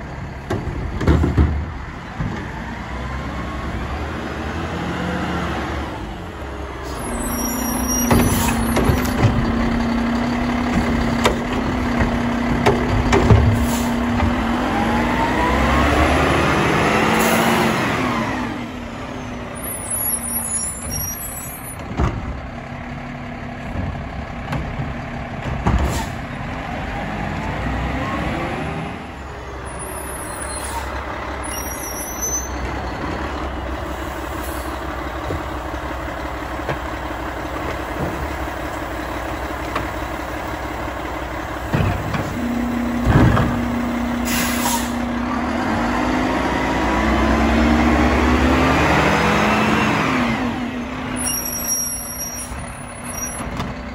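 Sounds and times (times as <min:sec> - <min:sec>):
truck diesel engine revving: 0:01.7 - 0:53.9
air brakes hissing: 0:06.8 - 0:08.8, 0:13.5 - 0:14.1, 0:25.8 - 0:26.3, 0:29.7 - 0:32.6, 0:33.8 - 0:34.8, 0:44.1 - 0:45.1
carts and lifting gear banging: 0:07.7 - 0:14.6, 0:41.3 - 0:45.0.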